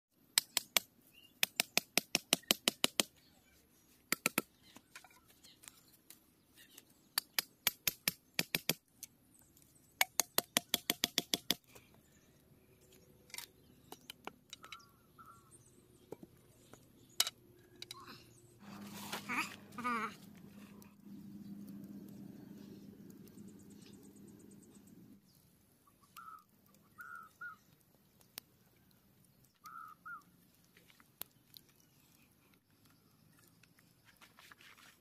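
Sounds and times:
knife hacking bamboo: 0:00.4 - 0:03.1, 0:10.0 - 0:11.6.

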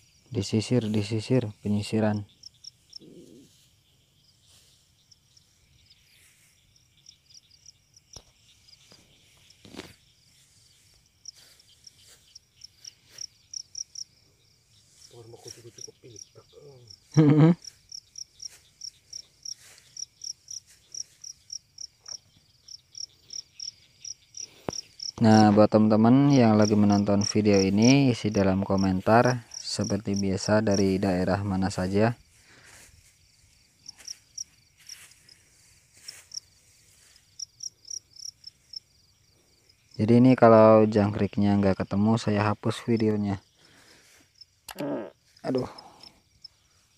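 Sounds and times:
cricket chirping: 0:00.0 - 0:46.9
stick swishing through grass: 0:33.9 - 0:37.2.

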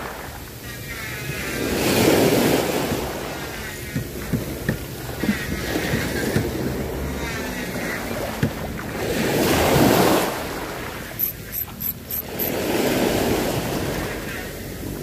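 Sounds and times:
sea waves washing onto beach: 0:00.0 - 0:15.0.

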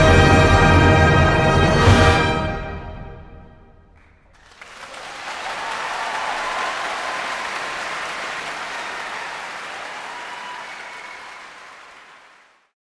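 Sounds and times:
audience applauding: 0:04.0 - 0:12.8.

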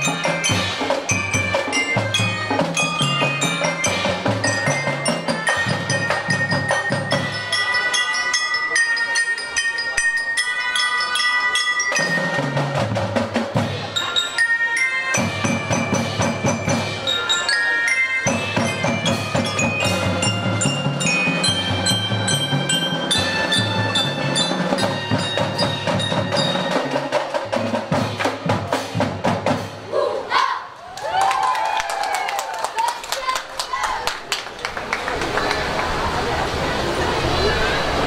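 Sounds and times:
marching band playing: 0:00.0 - 0:08.0, 0:11.9 - 0:29.9
bells and xylophones ringing: 0:00.0 - 0:29.0.

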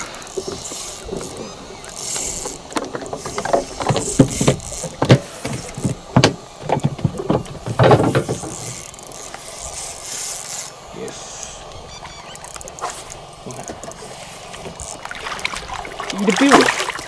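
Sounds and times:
fishing reel clicking and rattling: 0:00.0 - 0:06.0, 0:07.7 - 0:14.0, 0:14.6 - 0:15.1.

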